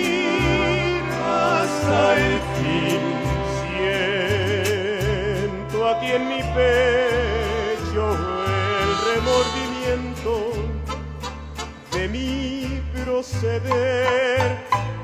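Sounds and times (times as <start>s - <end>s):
voices singing in harmony: 0.0s - 10.8s
harp: 0.0s - 12.3s
violins: 0.0s - 12.5s
deep bass line: 0.0s - 15.0s
rhythmic strumming: 0.0s - 15.0s
muted trumpets: 8.1s - 11.9s.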